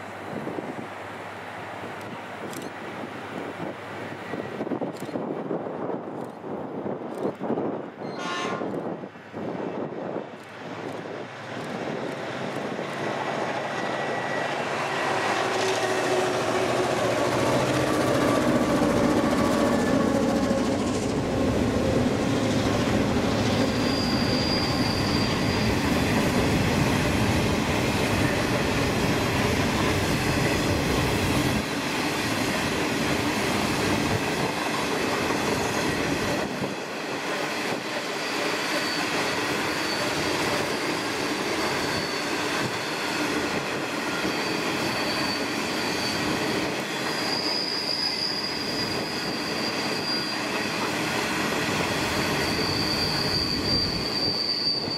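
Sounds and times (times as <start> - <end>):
train wheels rumbling and clattering: 8.6 - 54.9
high thin wheel squeal: 23.2 - 26.4, 38.1 - 54.9.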